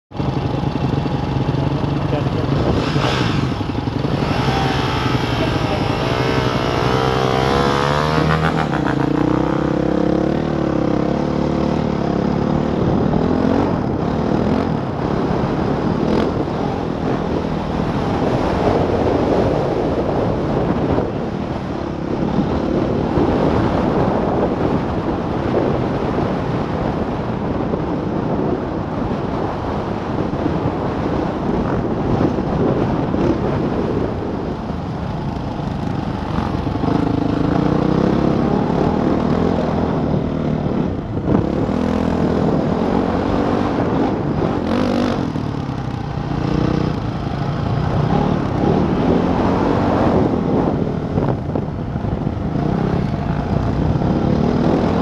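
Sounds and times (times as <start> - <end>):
wind rush on microphone: 0.1 - 55.0
dirt bike engine revving: 0.3 - 21.0, 35.2 - 51.3, 52.0 - 55.0.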